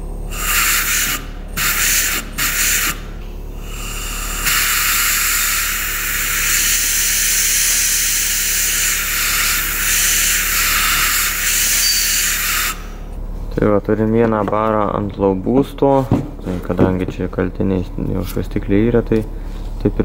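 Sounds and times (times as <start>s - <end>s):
compressed air hissing: 0.3s - 13.1s.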